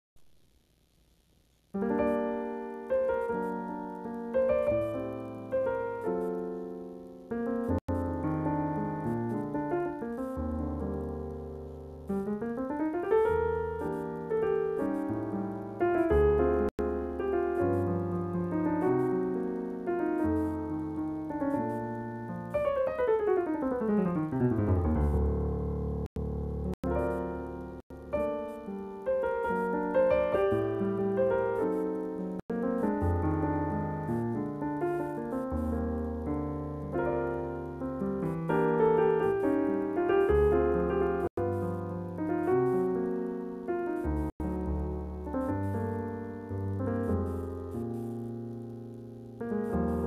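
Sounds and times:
solo piano playing chords: 1.8 - 50.0.

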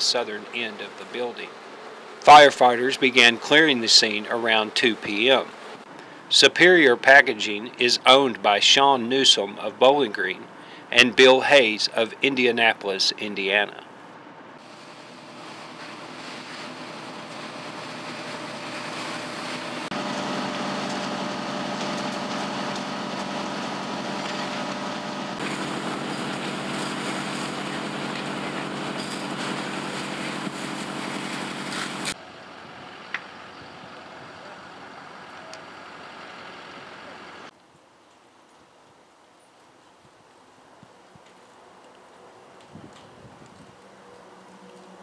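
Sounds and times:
truck engine droning: 14.6 - 37.5.

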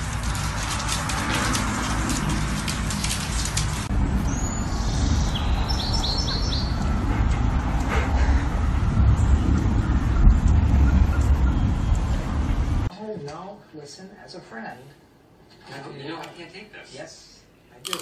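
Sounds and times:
crackly clicking noise: 0.0 - 3.9
steady low rumble: 0.0 - 12.9
small birds chirping: 4.2 - 7.0.

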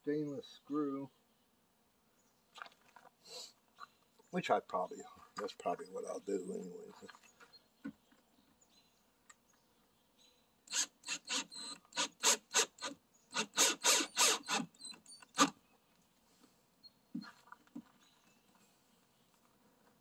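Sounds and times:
cordless drill driving screw: 10.7 - 15.5.

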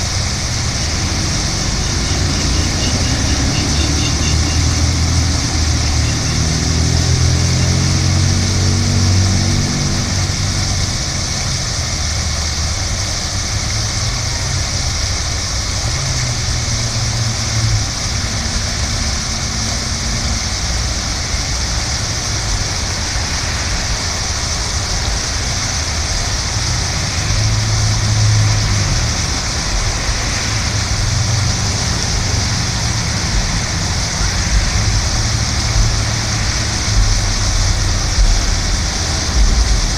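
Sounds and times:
fountain water splashing: 0.0 - 39.9
low rumble: 16.6 - 39.9.

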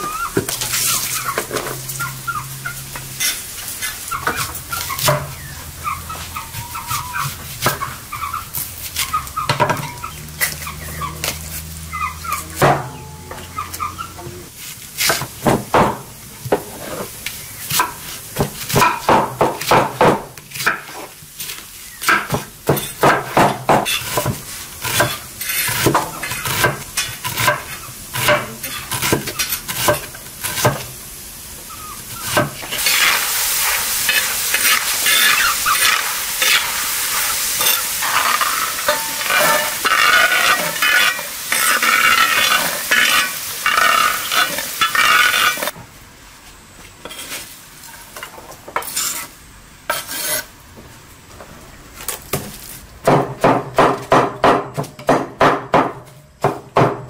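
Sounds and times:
food sizzling in a pan: 0.0 - 45.8, 47.0 - 50.6.

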